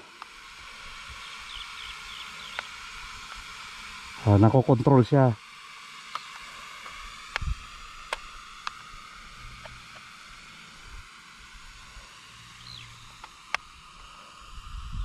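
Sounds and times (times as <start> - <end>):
toy drone propellers buzzing: 0.0 - 15.0
sharp clicks: 2.5 - 2.7, 6.1 - 8.9.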